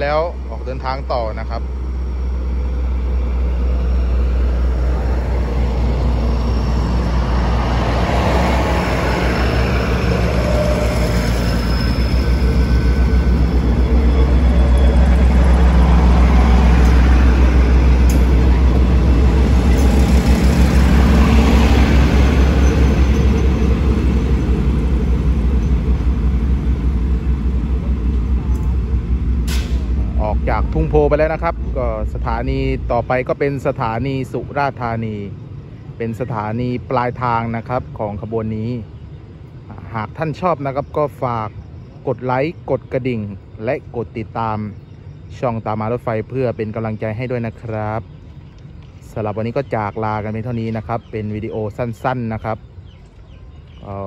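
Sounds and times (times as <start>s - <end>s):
train wheels rolling: 0.0s - 32.9s
diesel train engines: 0.0s - 54.0s.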